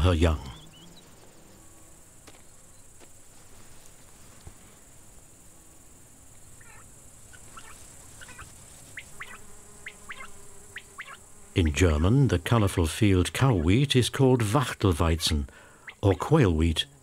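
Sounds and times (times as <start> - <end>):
high insect buzz: 0.0 - 17.0
bird chirps: 0.4 - 1.5, 6.6 - 13.8.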